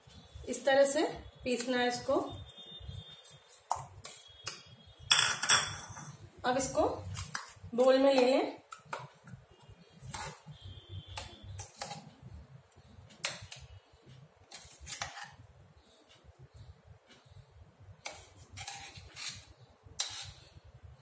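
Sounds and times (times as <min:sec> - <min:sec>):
spoon scraping metal jar: 0:18.6 - 0:20.4.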